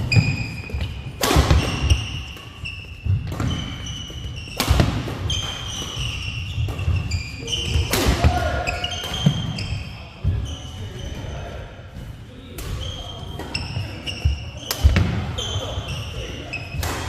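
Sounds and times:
shoes squeaking on court: 0:00.0 - 0:07.9, 0:08.5 - 0:11.5, 0:12.6 - 0:17.0
racket striking shuttlecock: 0:01.1 - 0:02.5.

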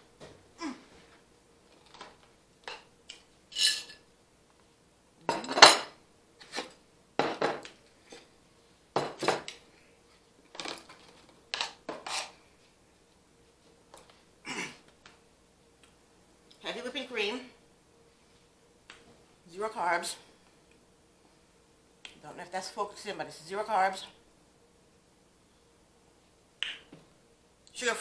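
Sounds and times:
plates and cutlery clattering: 0:03.5 - 0:04.0, 0:05.3 - 0:06.0.

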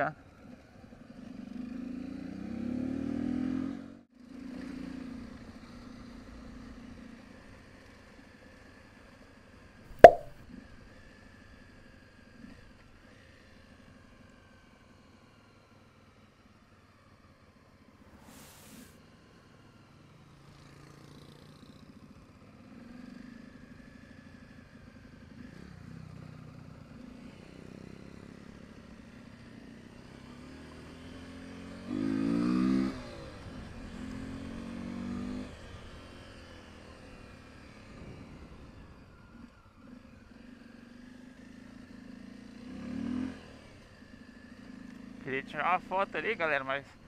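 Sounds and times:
motorcycle engine revving: 0:30.2 - 0:36.2, 0:40.4 - 0:46.1.

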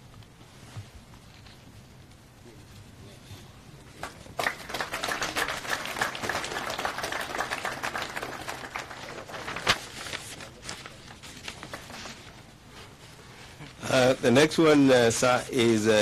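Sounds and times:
audience applause: 0:04.0 - 0:09.9.

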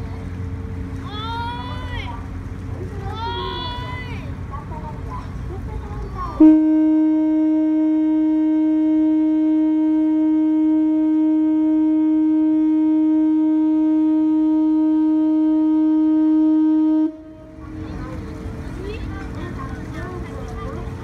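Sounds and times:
ship's horn blast: 0:06.4 - 0:18.5.

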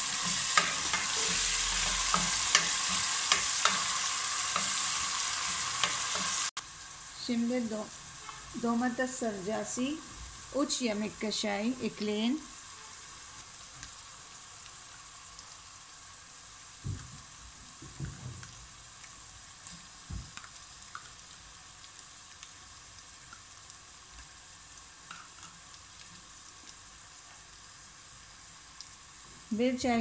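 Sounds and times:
onions sizzling in hot oil: 0:00.0 - 0:30.0.

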